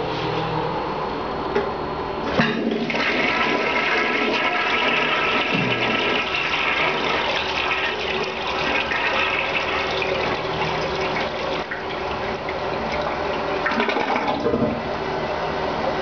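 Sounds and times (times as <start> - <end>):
water swirling down toilet bowl: 2.6 - 14.8.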